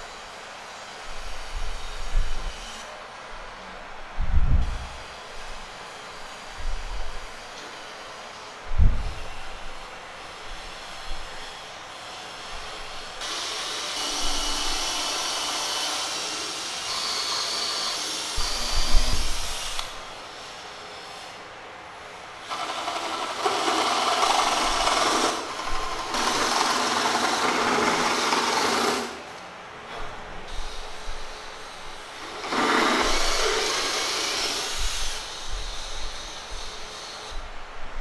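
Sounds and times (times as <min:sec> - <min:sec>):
power tool cutting wood: 0:13.2 - 0:20.0, 0:22.4 - 0:29.2, 0:32.2 - 0:36.4.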